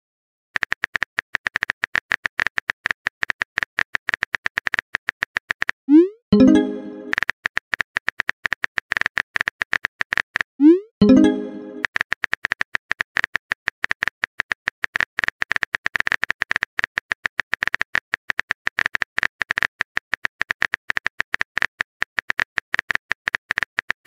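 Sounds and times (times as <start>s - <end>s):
keyboard typing clicks: 6.4s - 10.4s, 11.0s - 19.7s.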